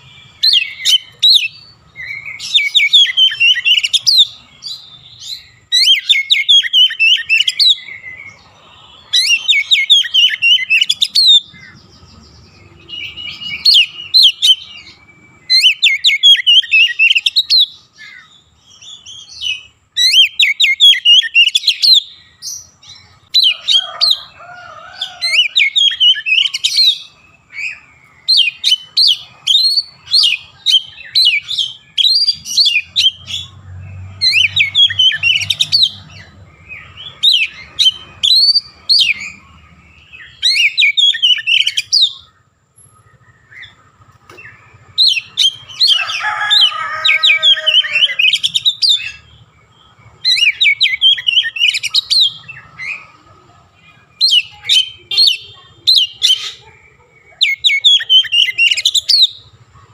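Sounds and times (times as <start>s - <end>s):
bird singing chirps and trills: 0.0s - 59.9s.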